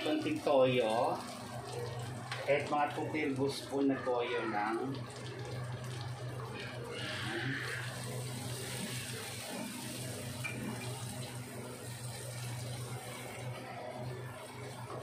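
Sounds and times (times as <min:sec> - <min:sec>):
sauce sizzling in a hot pan: 0:04.6 - 0:14.8.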